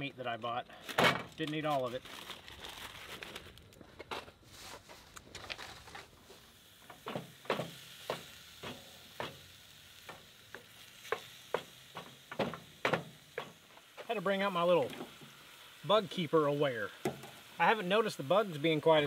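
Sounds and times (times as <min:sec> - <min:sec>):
meat sizzling in a frying pan: 0:06.1 - 0:19.0.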